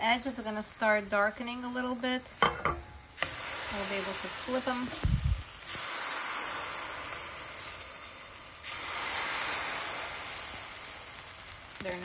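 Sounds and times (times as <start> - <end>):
pancakes sizzling in a frying pan: 0.0 - 12.0
spatula knocking on pan: 2.4 - 3.0.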